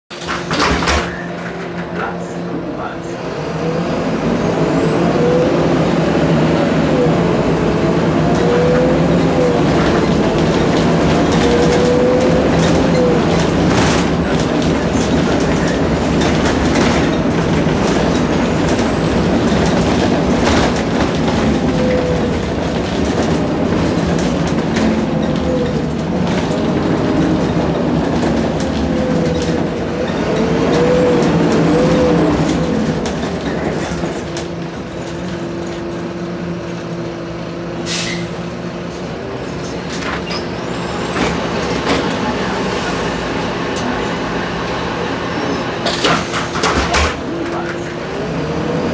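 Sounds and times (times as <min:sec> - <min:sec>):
bus engine hum and whine: 0:00.1 - 0:48.9
body rattles and knocks: 0:09.7 - 0:30.7.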